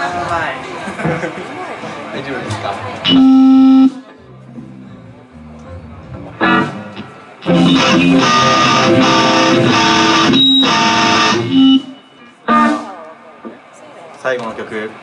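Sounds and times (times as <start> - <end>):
electric guitar strummed chords: 3.0 - 4.0, 6.3 - 13.0.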